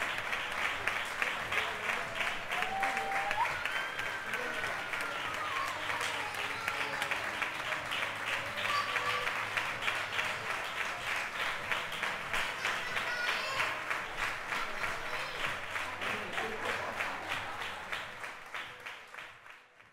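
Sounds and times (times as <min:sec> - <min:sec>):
crowd applauding: 0:00.0 - 0:19.9.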